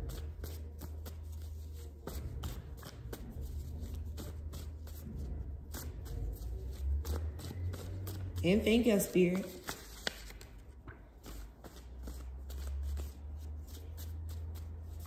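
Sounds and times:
cards being shuffled: 9.0s - 15.0s.

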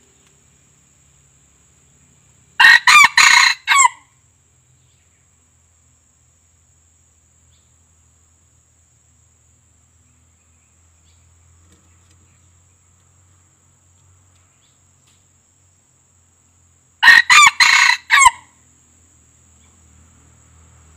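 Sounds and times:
faint ticks: 0.0s - 0.4s, 13.9s - 15.3s
insects droning: 0.0s - 20.9s.

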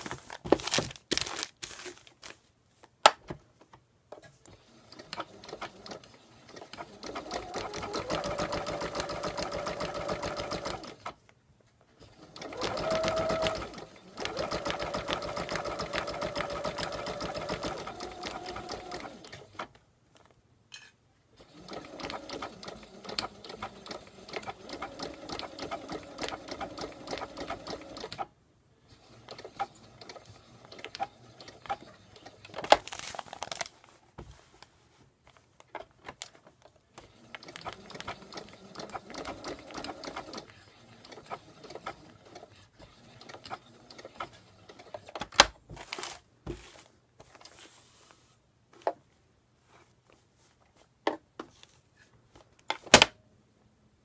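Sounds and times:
sewing machine stitching: 4.5s - 11.2s, 12.0s - 19.7s, 21.4s - 28.3s, 28.9s - 32.7s, 37.0s - 45.3s.

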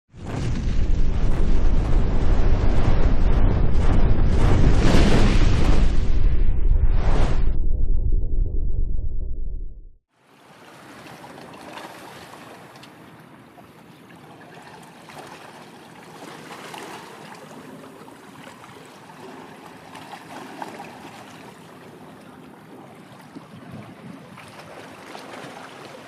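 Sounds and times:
wind over water: 0.2s - 9.7s, 10.6s - 26.0s
deep boom: 0.2s - 10.0s
small waves lapping: 10.1s - 26.0s.

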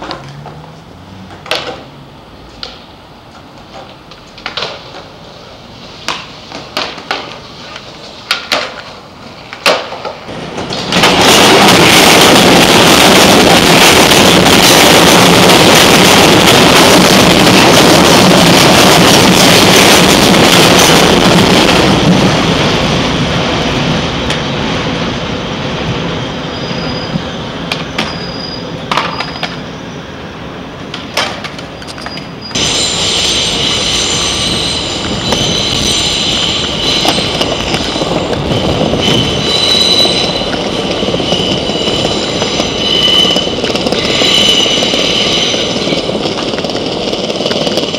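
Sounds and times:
elevated train rumbling: 0.0s - 47.9s
high wheel squeal: 26.4s - 30.3s, 31.7s - 46.2s.

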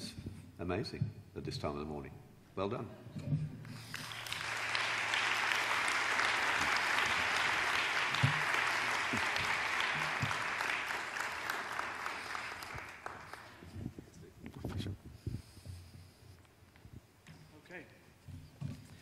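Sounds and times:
audience applauding: 3.7s - 13.7s.

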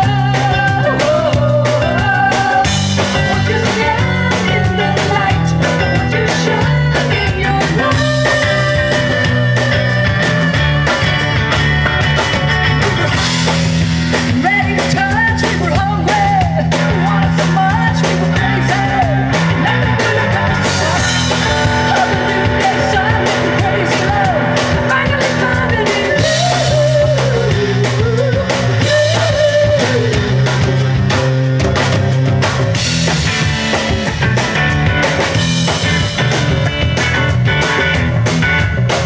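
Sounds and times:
woman singing lead: 0.0s - 12.0s, 14.1s - 31.3s
drum kits with steady beat: 0.0s - 39.0s
electric bass: 0.0s - 39.0s
electric guitar: 0.0s - 39.0s.

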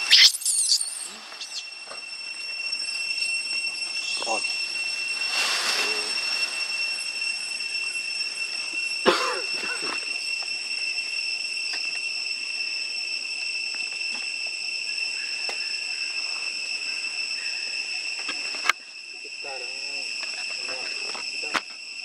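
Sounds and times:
brief squeaky call: 0.0s - 1.7s
insects droning: 0.0s - 22.0s.

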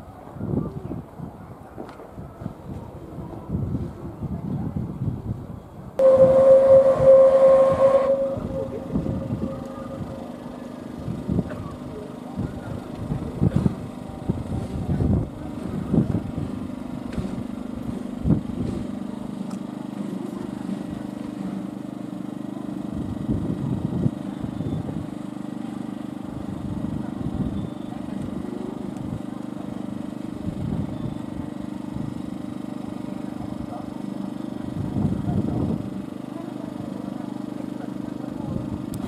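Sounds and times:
small engine humming: 0.0s - 39.0s
wind buffeting microphone: 0.2s - 10.3s.

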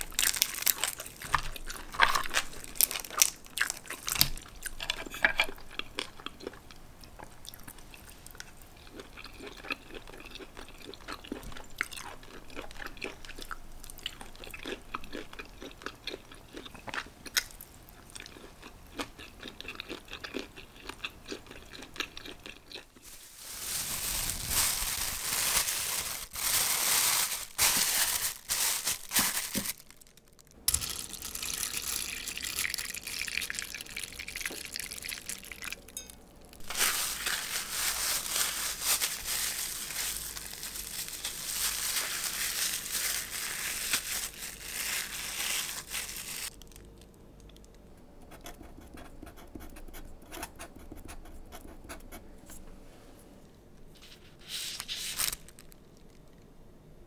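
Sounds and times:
plastic bag crinkling: 0.0s - 4.8s, 22.8s - 35.8s, 36.5s - 47.1s, 54.7s - 56.4s
chewing shellfish with clicks: 1.0s - 23.0s, 46.5s - 47.9s.

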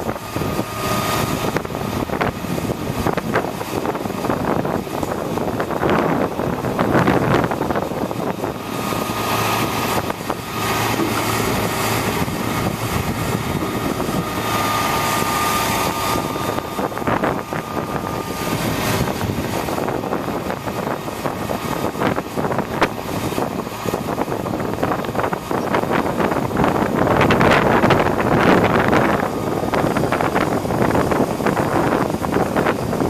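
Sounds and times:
truck engine running: 0.0s - 33.0s
wind buffeting microphone: 0.0s - 33.0s
hydraulic boom moving: 5.8s - 24.3s.

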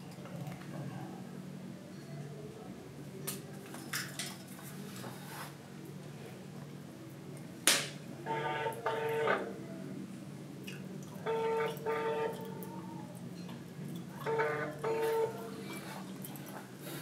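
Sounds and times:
phone ringing tone: 8.3s - 9.4s, 14.3s - 15.4s.

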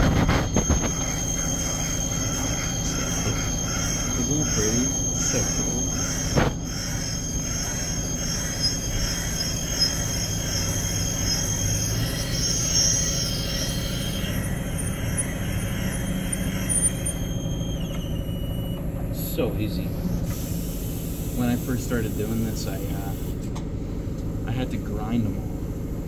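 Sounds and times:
high-pitched metal squeal: 0.0s - 20.2s
machine running noise: 0.0s - 26.0s.

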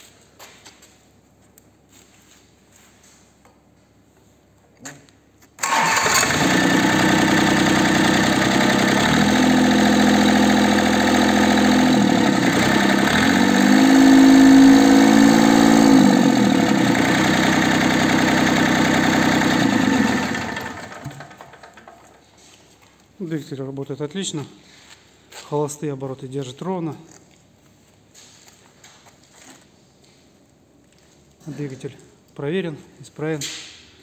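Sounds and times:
diesel engine idling and revving: 5.6s - 21.8s.

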